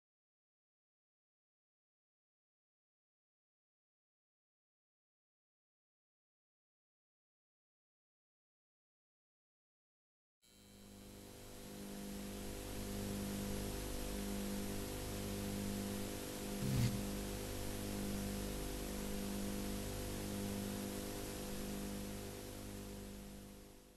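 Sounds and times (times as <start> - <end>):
mains hum: 10.5 - 23.9
pulsing low tone: 16.6 - 17.4.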